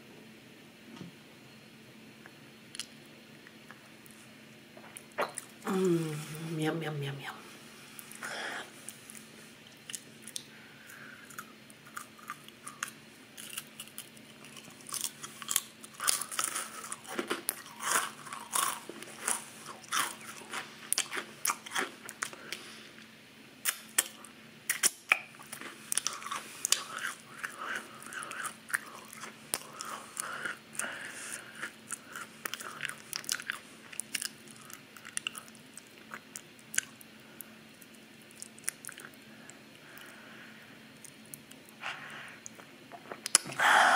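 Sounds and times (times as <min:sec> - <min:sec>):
crackers crunching: 0:08.0 - 0:22.7, 0:23.6 - 0:40.2.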